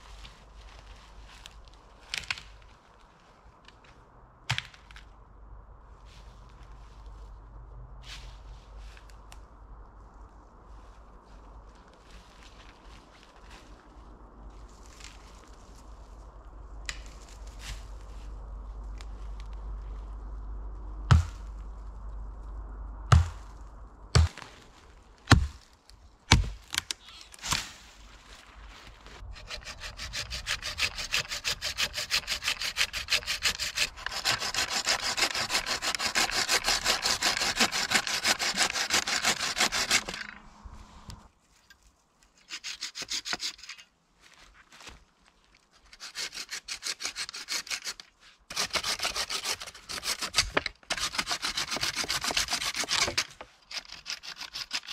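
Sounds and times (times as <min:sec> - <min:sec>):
hand saw cutting wood: 0:29.3 - 0:40.4, 0:42.4 - 0:43.8, 0:45.8 - 0:54.9.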